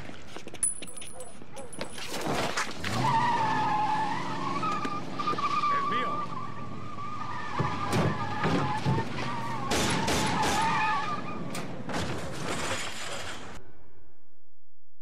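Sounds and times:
truck tyres squealing: 2.0s - 13.6s
truck engine: 2.2s - 13.8s
sharp bangs: 7.6s - 10.9s.

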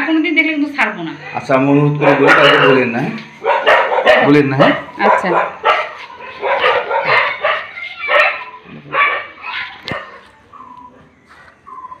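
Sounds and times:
dog barking: 2.0s - 10.8s.

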